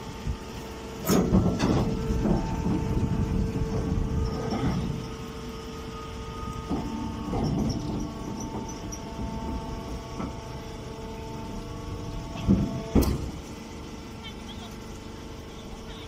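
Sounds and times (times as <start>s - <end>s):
baler machine hum: 0.0s - 16.0s
machine knocks: 1.0s - 3.1s, 12.4s - 13.4s.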